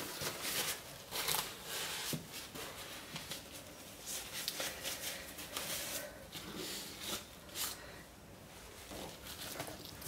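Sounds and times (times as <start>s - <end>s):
paper towel rustling and crumpling: 0.0s - 7.8s.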